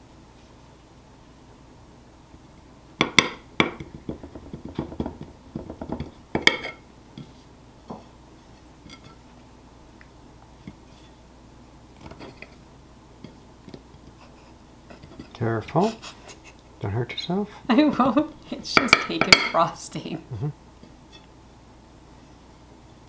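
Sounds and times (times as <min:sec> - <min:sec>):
knife scraping a plate: 0:12.0 - 0:12.6, 0:14.2 - 0:16.4.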